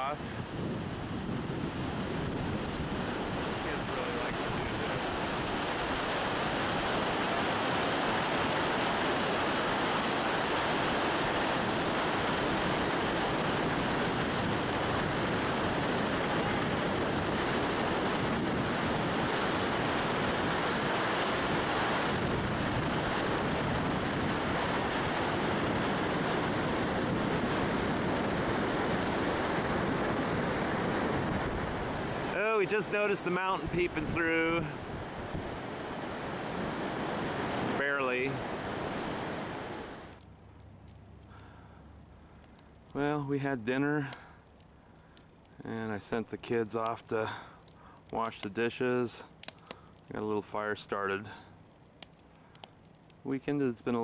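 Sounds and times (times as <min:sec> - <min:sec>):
whitewater roaring: 0:00.0 - 0:40.2.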